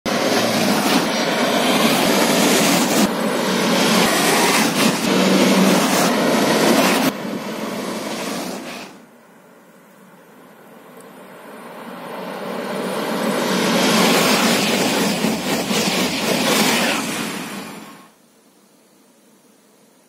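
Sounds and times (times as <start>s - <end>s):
high-speed train rushing past: 0.1s - 9.2s, 11.3s - 18.2s.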